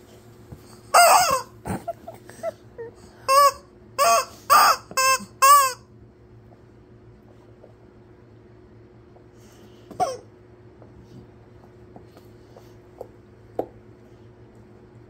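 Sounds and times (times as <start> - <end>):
rubber chicken toy squawking: 0.9 - 1.6, 3.3 - 5.8.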